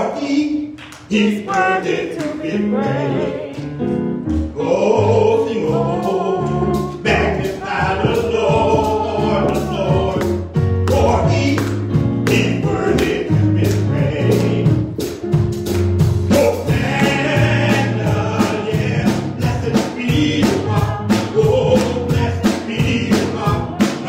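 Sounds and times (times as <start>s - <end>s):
backing voices singing: 0.0s - 15.2s, 16.3s - 24.0s
man singing into a microphone: 10.9s - 11.7s, 16.3s - 24.0s.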